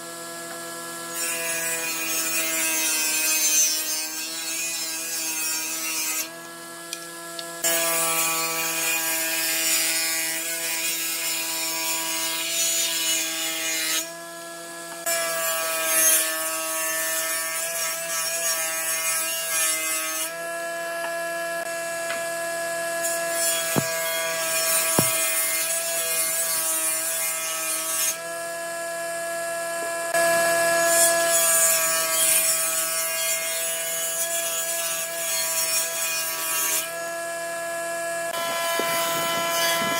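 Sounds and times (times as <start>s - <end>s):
saw blade cutting wood: 1.1s - 14.2s, 14.9s - 20.5s, 23.0s - 28.3s, 38.3s - 39.9s
circular saw whine: 36.8s - 39.9s.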